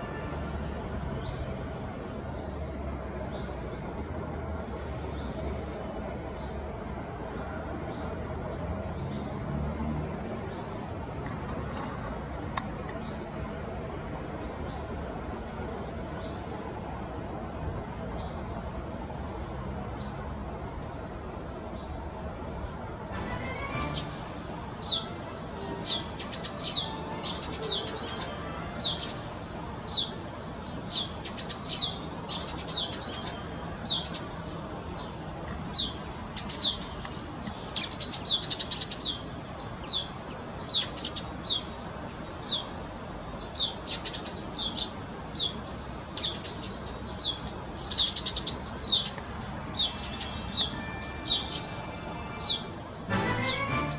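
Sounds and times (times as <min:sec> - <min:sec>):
low background noise: 0:00.0 - 0:53.9
sparrow chirping: 0:23.3 - 0:34.3, 0:43.4 - 0:53.9.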